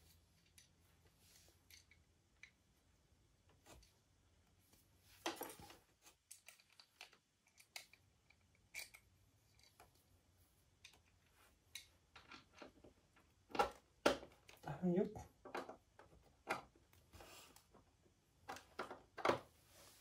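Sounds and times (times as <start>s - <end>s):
plastic parts clicking and knocking: 1.6s - 2.8s, 5.2s - 10.1s, 10.7s - 14.7s, 15.3s - 19.5s.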